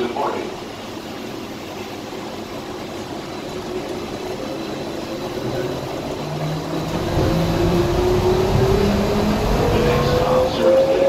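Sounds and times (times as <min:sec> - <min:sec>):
train running rumble: 0:00.0 - 0:11.0.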